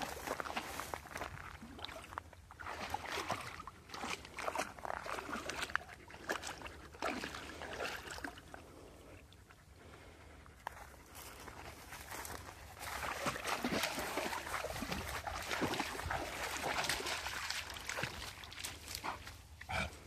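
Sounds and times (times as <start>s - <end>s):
dog splashing in puddle: 0.0s - 8.7s, 12.7s - 19.9s.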